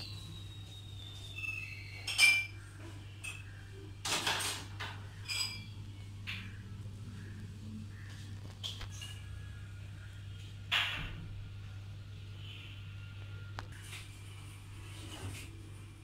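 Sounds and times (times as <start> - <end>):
glass dishes clinking: 1.9 - 2.6, 3.2 - 3.5, 4.4 - 6.6
steady low hum: 4.8 - 16.0.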